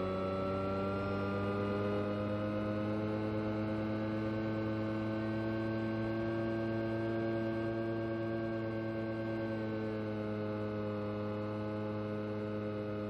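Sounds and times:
propeller motor drone: 0.0 - 13.0.

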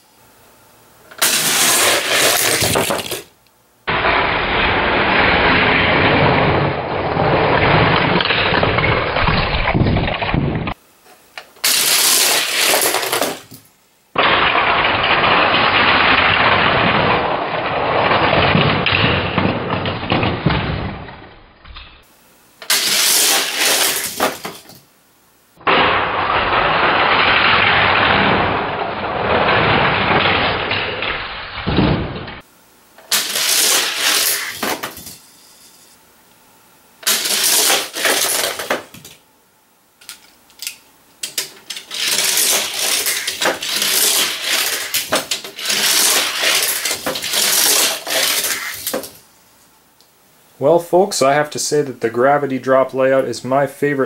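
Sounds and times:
toy cars clattering into gate: 1.2 - 3.3, 11.6 - 13.6, 22.6 - 24.8, 33.0 - 35.3, 37.0 - 39.2, 40.0 - 49.2
toy cars rattling down plastic track: 1.2 - 3.3, 4.0 - 10.4, 11.6 - 13.6, 14.2 - 20.9, 22.6 - 24.8, 25.7 - 31.3, 33.0 - 35.2, 37.0 - 39.2, 40.0 - 49.2.

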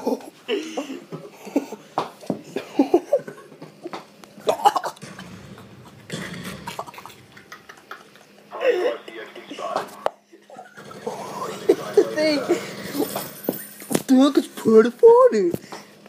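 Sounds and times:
boys laughing: 2.5 - 5.1, 6.2 - 9.3, 10.4 - 13.9.

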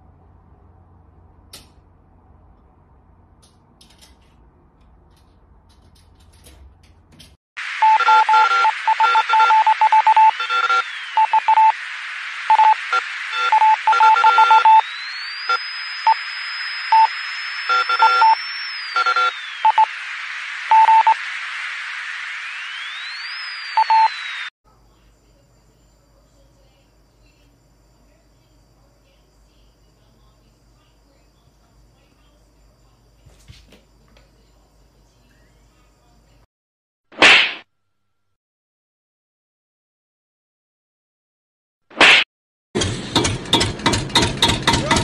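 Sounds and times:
dial-up modem handshake: 13.4 - 14.9, 17.7 - 19.9.

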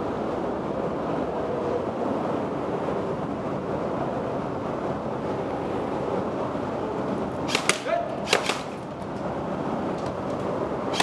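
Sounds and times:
airsoft guns firing: 7.5 - 8.8.

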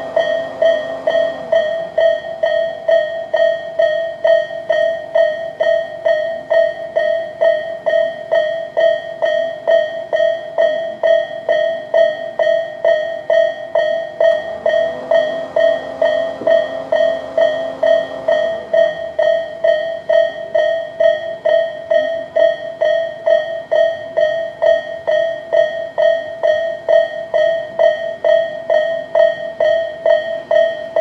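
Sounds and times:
level crossing warning bell ringing: 0.0 - 31.0
train rumbling past: 14.3 - 19.3.

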